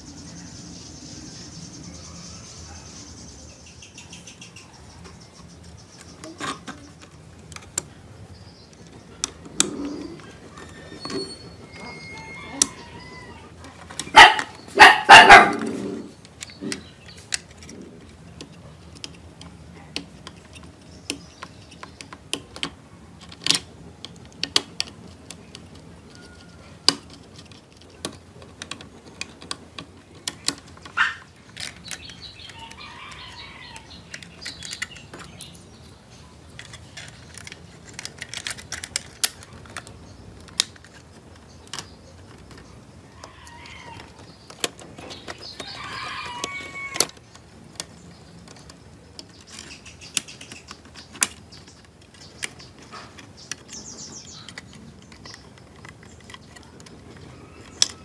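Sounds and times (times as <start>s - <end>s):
plastic toy parts clicking: 6.0s - 10.9s, 16.2s - 35.7s, 36.4s - 58.0s
plastic parts clattering: 15.6s - 35.6s, 36.5s - 58.0s.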